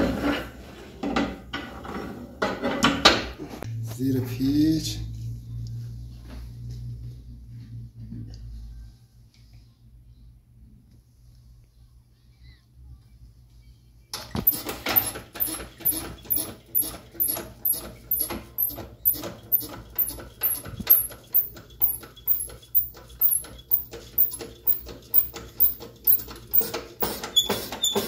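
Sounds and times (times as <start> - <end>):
hydraulic press hand pump strokes: 14.4 - 28.0.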